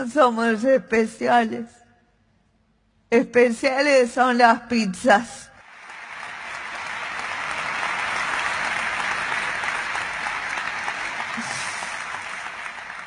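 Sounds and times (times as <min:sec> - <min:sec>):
large audience applauding: 0:05.6 - 0:13.0.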